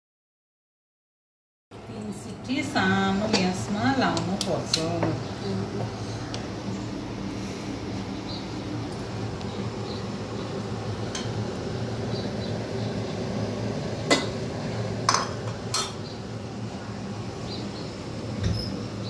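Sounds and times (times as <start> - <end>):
dishes and utensils clinking: 15.1 - 16.0.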